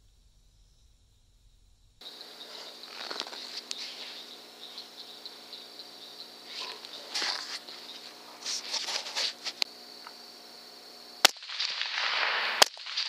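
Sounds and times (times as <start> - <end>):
night insects trilling: 0.0 - 13.0
rustling: 2.1 - 4.9, 6.4 - 9.7.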